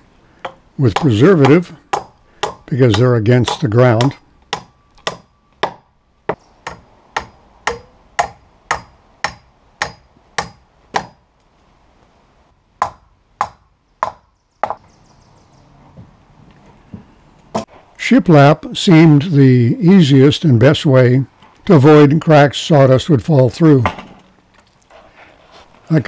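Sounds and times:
hammer striking wooden board: 0:00.4 - 0:11.2, 0:12.8 - 0:14.8.

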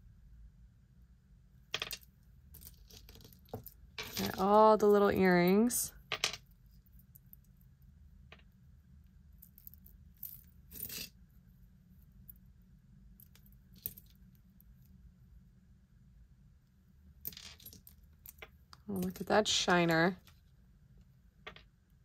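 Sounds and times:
low steady hum: 0:00.0 - 0:22.0
small metal jewelry clinking: 0:01.7 - 0:07.6, 0:09.3 - 0:11.2, 0:13.1 - 0:14.4.

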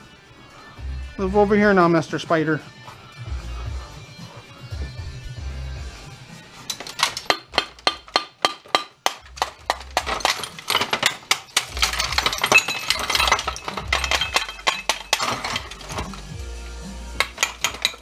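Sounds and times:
background music: 0:00.0 - 0:18.0
hand tool prying and knocking: 0:06.6 - 0:16.4, 0:17.2 - 0:18.0
metal and plastic parts clinking: 0:06.6 - 0:16.4, 0:17.2 - 0:18.0.

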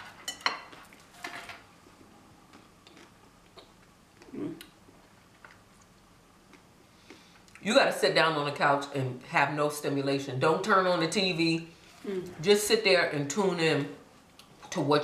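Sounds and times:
person humming: 0:04.3 - 0:04.6, 0:12.0 - 0:12.4.

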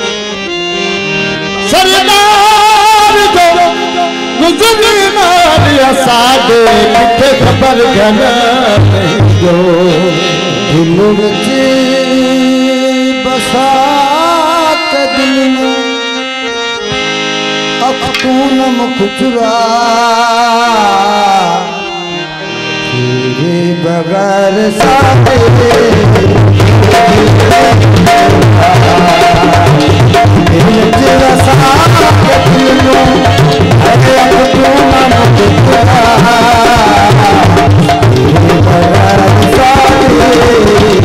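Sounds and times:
wavering folk melody: 0:00.0 - 0:41.0
tabla drumming: 0:01.2 - 0:16.0, 0:16.8 - 0:21.8, 0:23.3 - 0:41.0.

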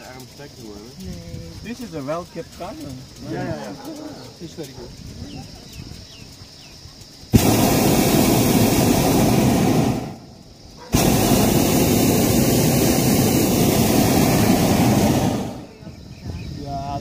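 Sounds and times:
propane burner blasts: 0:00.0 - 0:17.0.

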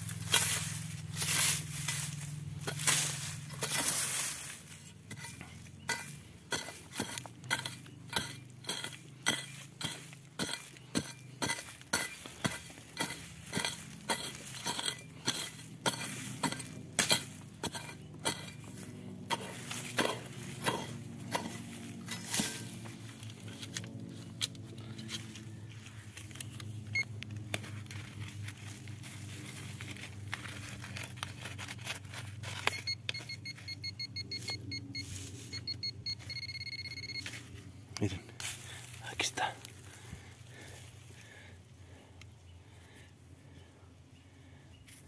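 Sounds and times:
digging tool striking stony soil: 0:00.0 - 0:04.4, 0:05.0 - 0:25.5
low steady hum: 0:00.0 - 0:44.7.

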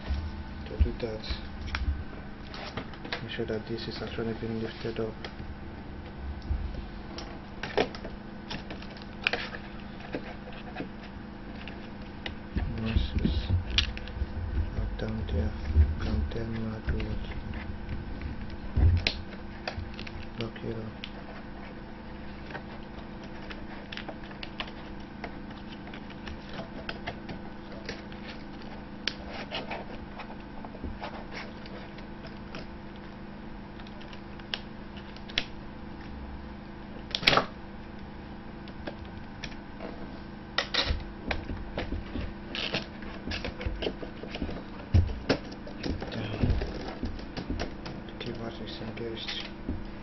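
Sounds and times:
steady low hum: 0:00.0 - 0:50.0
sharp plastic snap: 0:37.1 - 0:37.6.

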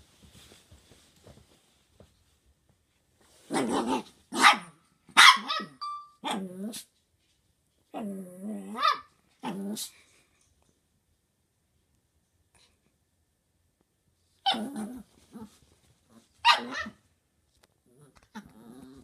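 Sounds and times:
small dog barking: 0:03.5 - 0:06.5, 0:08.7 - 0:09.9, 0:14.4 - 0:15.0, 0:16.4 - 0:17.0.

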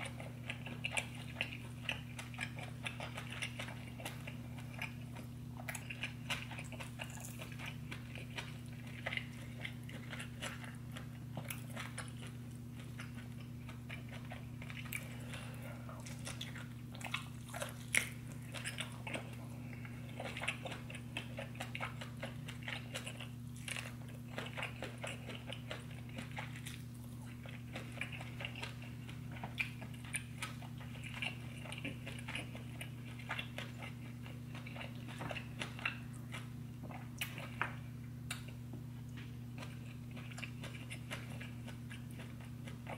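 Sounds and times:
steady low hum: 0:00.0 - 0:42.9
wet chewing and biting: 0:00.0 - 0:42.9.

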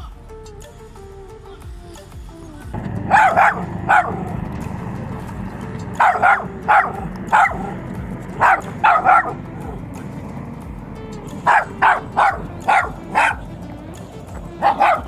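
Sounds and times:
small dog barking: 0:02.8 - 0:09.9, 0:11.3 - 0:15.0.

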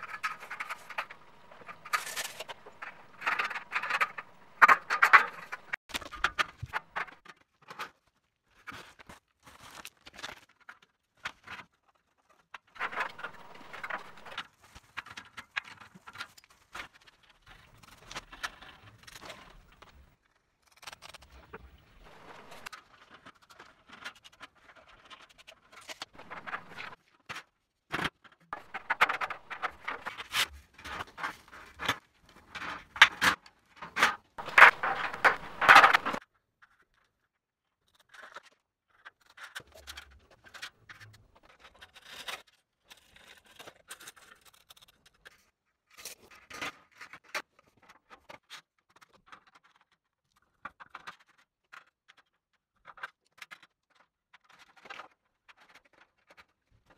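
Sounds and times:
metal track scraping and knocking: 0:00.0 - 0:07.1, 0:12.8 - 0:14.4, 0:22.0 - 0:22.7, 0:26.2 - 0:27.0, 0:28.6 - 0:30.2, 0:34.4 - 0:36.2.

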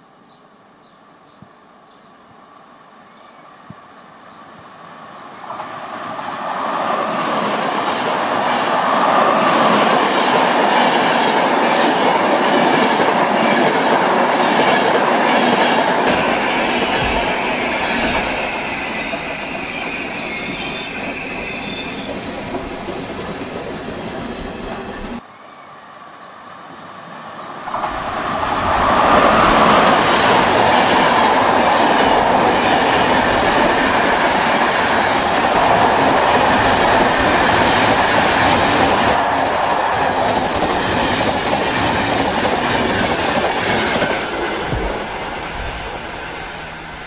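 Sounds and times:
train clattering over rails: 0:05.4 - 0:25.2, 0:27.6 - 0:47.0
high wheel squeal: 0:18.2 - 0:23.7.

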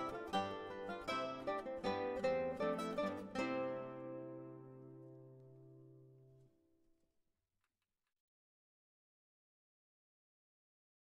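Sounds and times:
plucked-string chord ringing: 0:00.0 - 0:06.4.

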